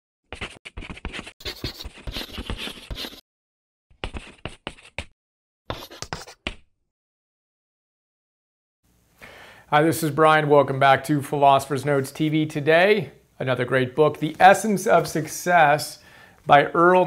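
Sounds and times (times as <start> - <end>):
chalk scratching on chalkboard: 0.3 - 3.2, 4.0 - 5.1, 5.7 - 6.6.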